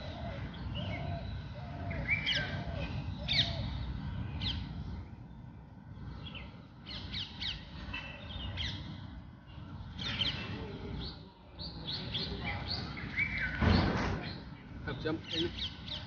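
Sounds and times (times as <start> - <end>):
birds chirping: 0.0 - 16.0
low background rumble: 0.0 - 16.0.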